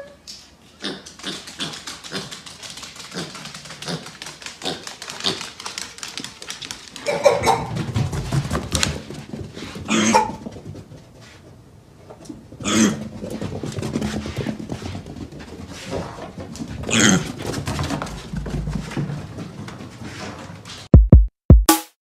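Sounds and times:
hooves tapping on wooden floor: 0:01.1 - 0:11.1.

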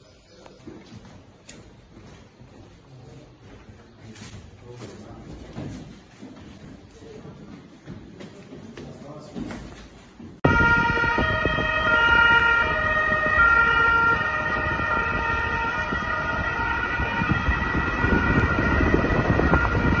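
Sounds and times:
two-tone police sirens: 0:10.4 - 0:20.0.

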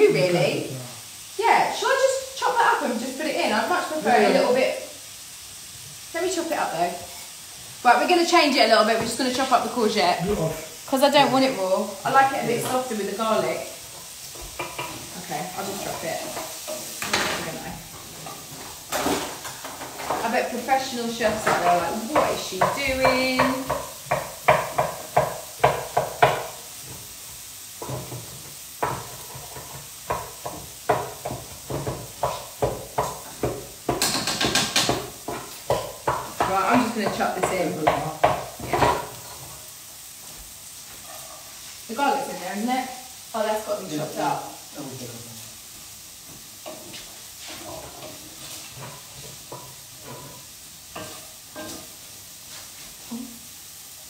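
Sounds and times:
bacon sizzling in a pan: 0:00.0 - 0:54.0
knife chopping on wooden board: 0:22.2 - 0:26.5, 0:30.1 - 0:39.0.

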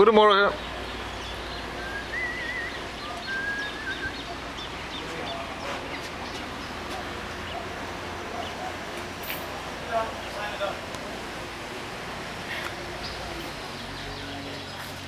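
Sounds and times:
bird whistling and warbling: 0:01.8 - 0:04.7.

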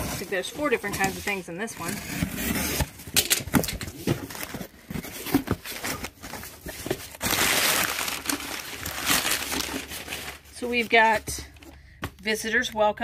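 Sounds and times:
cardboard box being opened: 0:00.0 - 0:11.0
packing paper rustling: 0:02.7 - 0:11.7.

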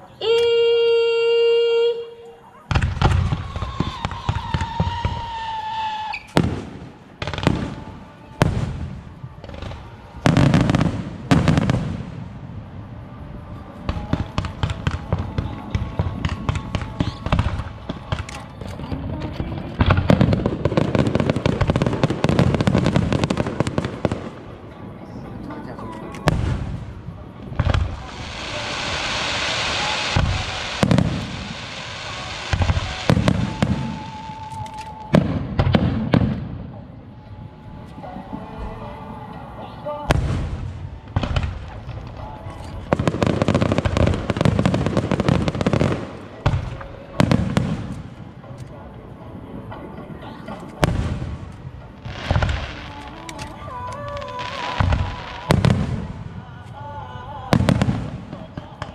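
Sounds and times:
fireworks crackling: 0:01.0 - 0:58.9.

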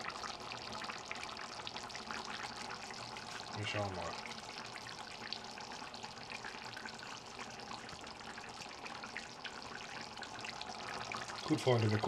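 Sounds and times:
sauce simmering with bubbling pops: 0:00.0 - 0:12.0.

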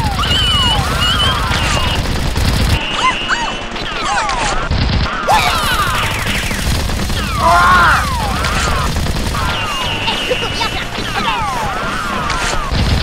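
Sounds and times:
whistling ricochet whines: 0:00.0 - 0:02.1
rapid gunfire: 0:00.0 - 0:13.0.

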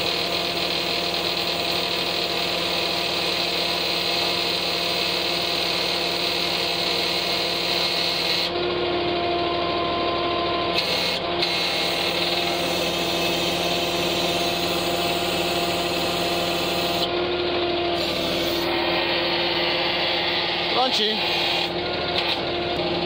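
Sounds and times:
hydraulic crane humming and whining: 0:00.0 - 0:23.0.

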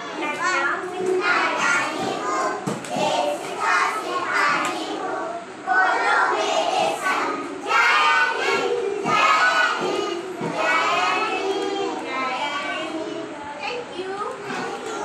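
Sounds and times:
teacher speaking: 0:00.0 - 0:02.5.

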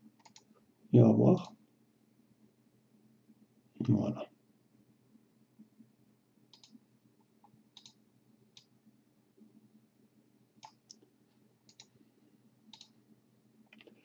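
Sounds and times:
faint computer mouse clicks: 0:00.2 - 0:00.5, 0:06.5 - 0:06.8, 0:07.4 - 0:08.0, 0:10.6 - 0:11.1, 0:11.7 - 0:12.0, 0:12.7 - 0:13.0.

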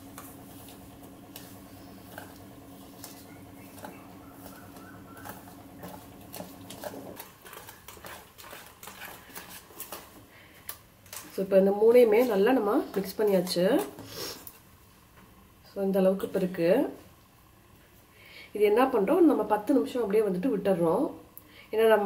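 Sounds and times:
whisk beating batter in metal bowl: 0:00.0 - 0:10.2
faint steady hum: 0:00.0 - 0:22.0.

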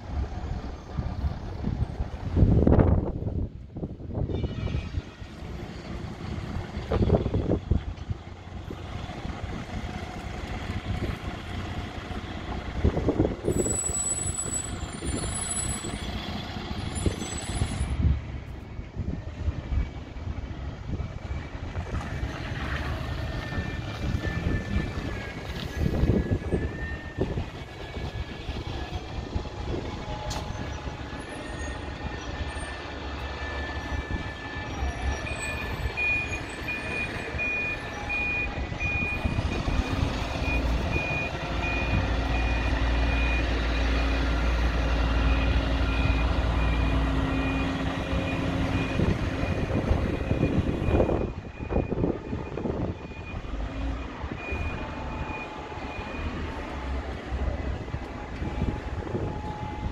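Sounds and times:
bus engine running: 0:00.0 - 0:04.2, 0:05.0 - 0:59.9
reversing alarm beeping: 0:30.0 - 0:44.2, 0:45.0 - 0:56.8, 0:58.2 - 0:59.9.

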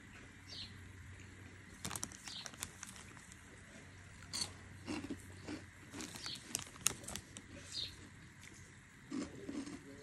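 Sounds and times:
crunching puffed snacks: 0:01.7 - 0:03.6, 0:04.2 - 0:09.8
snack bag crinkling: 0:01.7 - 0:03.6, 0:04.9 - 0:07.7.

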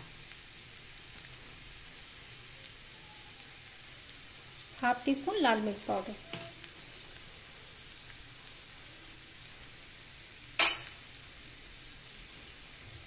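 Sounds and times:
chickpeas frying soft sizzle: 0:00.0 - 0:13.0
sharp metal clink: 0:10.6 - 0:11.0.

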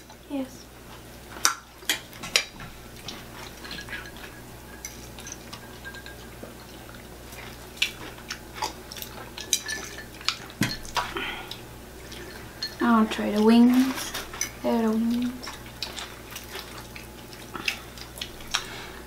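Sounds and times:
chewing crunchy food: 0:00.9 - 0:19.0
fork clinking on plate: 0:03.6 - 0:06.3
ice clinking in glass: 0:03.7 - 0:06.3.

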